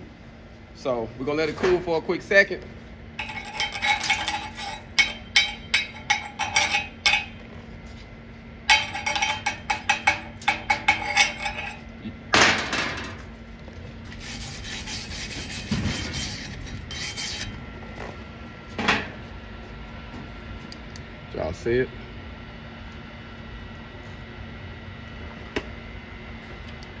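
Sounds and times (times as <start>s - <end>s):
chipping hammer tapping metal: 8.7s - 11.8s.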